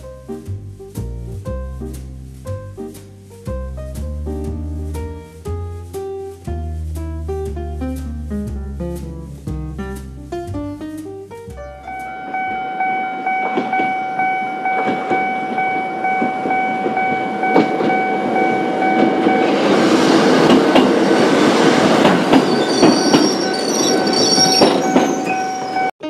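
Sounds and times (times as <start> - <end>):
high-pitched wheel squeals: 11.6 - 19.7, 22.3 - 25.9
train passing: 11.6 - 25.9
level-crossing warning bell: 11.7 - 21.4, 22.1 - 25.9
wheels clattering over rail joints: 14.7 - 25.9.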